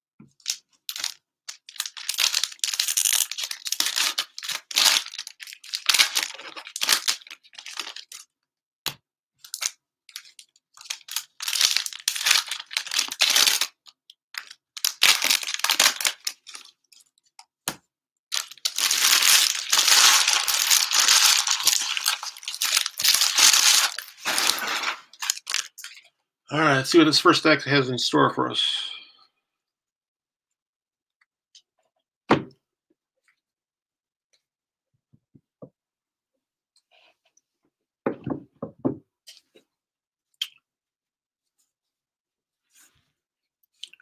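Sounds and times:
plastic wrappers tearing and crinkling: 0.4 - 8.2, 9.4 - 16.8, 18.3 - 26.0.

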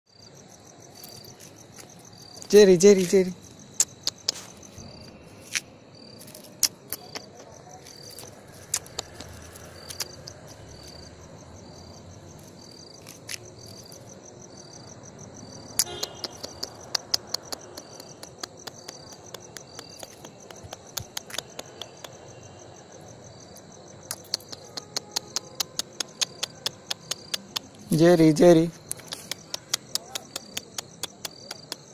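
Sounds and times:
crickets chirping: 0.1 - 31.9
sharp clicks and taps: 3.8 - 4.6, 6.3 - 7.5, 8.1 - 10.4, 15.8 - 22.2, 24.1 - 27.9, 28.7 - 31.9.

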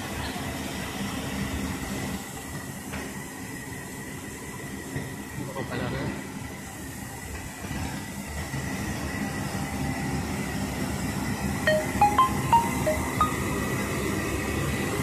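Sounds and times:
short musical notes: 11.7 - 14.0.

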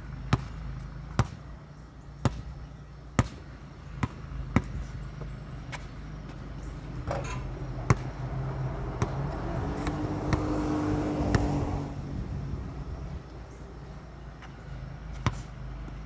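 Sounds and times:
vehicle passing: 3.5 - 16.0.

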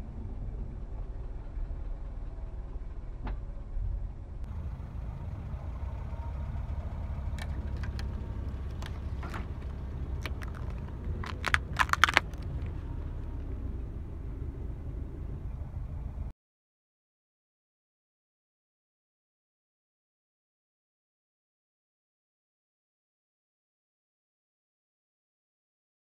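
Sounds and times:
car engine rumbling: 0.0 - 16.3
tyre crushing foam cups: 7.4 - 12.8.

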